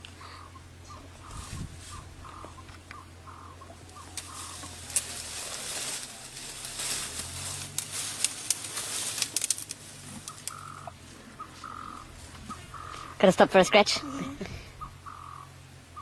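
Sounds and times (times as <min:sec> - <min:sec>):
leaves rustling: 0:01.0 - 0:16.0
twigs snapping: 0:04.0 - 0:10.8.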